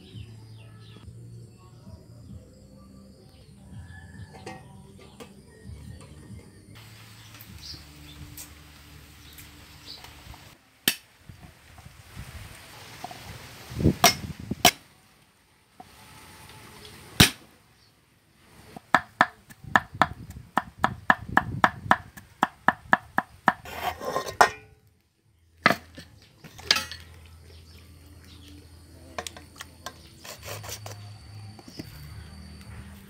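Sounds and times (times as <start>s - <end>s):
cleaver chopping on wooden block: 18.8s - 23.6s
scraping on chopping block: 23.5s - 24.5s, 29.8s - 31.0s.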